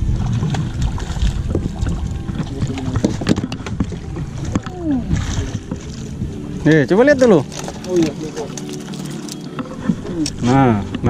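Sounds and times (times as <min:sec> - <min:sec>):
wind on microphone: 0:00.0 - 0:06.7.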